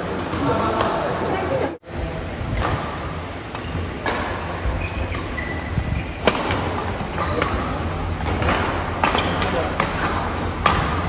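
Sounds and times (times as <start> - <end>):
rackets smacking shuttlecock: 2.6 - 5.6, 6.2 - 11.0
shoes squeaking on court: 3.6 - 7.8.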